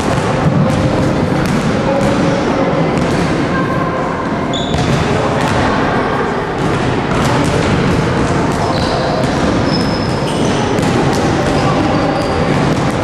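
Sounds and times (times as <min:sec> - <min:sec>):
balls striking backboard and rim: 0:00.0 - 0:02.4, 0:03.0 - 0:03.4, 0:04.6 - 0:05.7, 0:06.6 - 0:13.0
basketballs bouncing on floor: 0:00.0 - 0:03.4, 0:04.6 - 0:05.7, 0:06.6 - 0:13.0.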